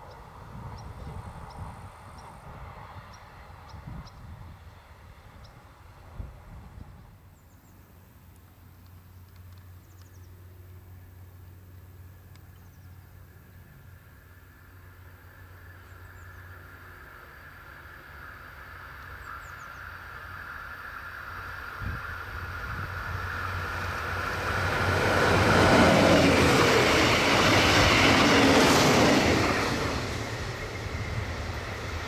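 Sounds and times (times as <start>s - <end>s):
diesel train passing: 0.0s - 32.0s
train wheels on rails: 13.9s - 32.0s.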